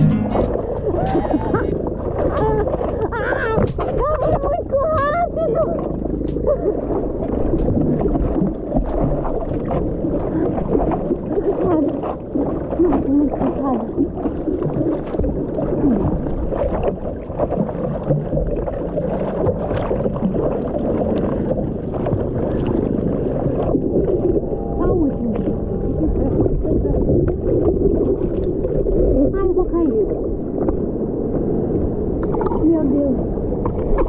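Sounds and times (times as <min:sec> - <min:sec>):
water sloshing and splashing: 0:00.0 - 0:34.0
small splashy clicks: 0:00.3 - 0:15.3.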